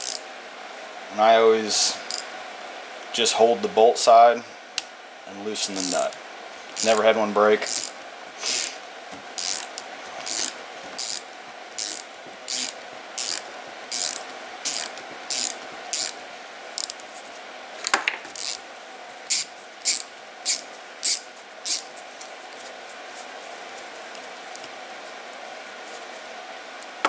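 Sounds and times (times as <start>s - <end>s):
ratchet tool clicking: 0.0s - 0.2s, 5.8s - 6.1s, 6.8s - 7.0s, 7.6s - 8.7s, 9.4s - 11.2s, 11.8s - 16.2s, 16.8s - 17.0s, 18.4s - 18.6s, 19.3s - 21.8s.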